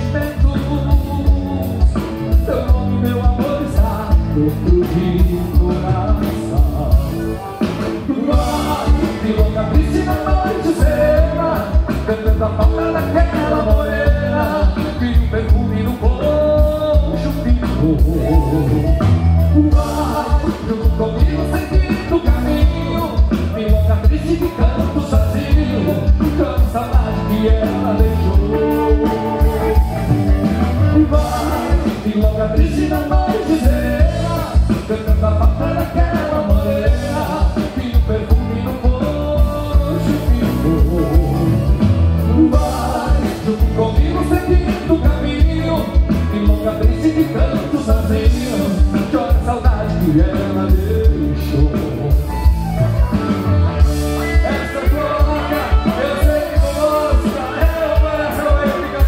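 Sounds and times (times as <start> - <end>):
live band music: 0.0 - 59.0
person singing: 0.0 - 59.0.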